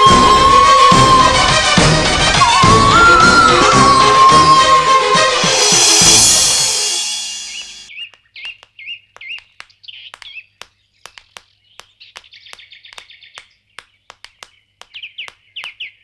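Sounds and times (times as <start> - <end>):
bird trill: 0.0 - 10.5
birds chirping: 0.0 - 16.0.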